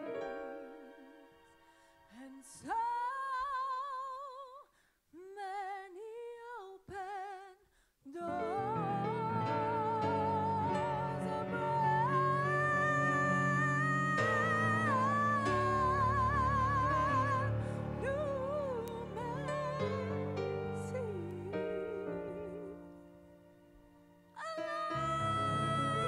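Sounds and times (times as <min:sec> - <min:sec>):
high voice singing with vibrato: 0:05.3 - 0:23.1, 0:24.4 - 0:26.0.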